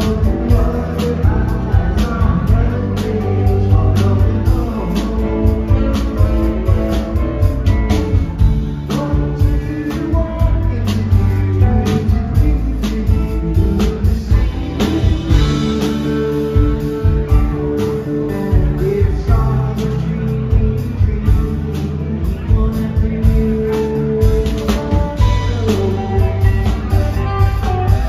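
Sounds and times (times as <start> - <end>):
live rock band playing: 0.0 - 28.0
steady drum beat: 0.0 - 28.0
saxophone: 24.2 - 28.0.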